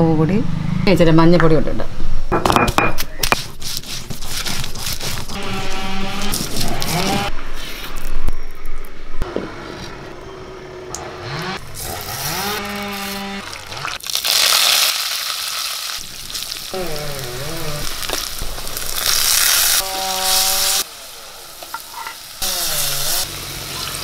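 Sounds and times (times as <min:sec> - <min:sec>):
hot oil sizzling and spattering: 0:13.8 - 0:16.8, 0:17.8 - 0:24.0.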